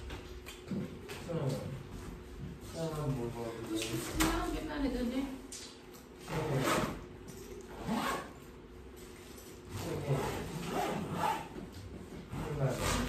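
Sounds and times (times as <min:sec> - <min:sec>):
suitcase zipper pulled: 0:07.7 - 0:08.3.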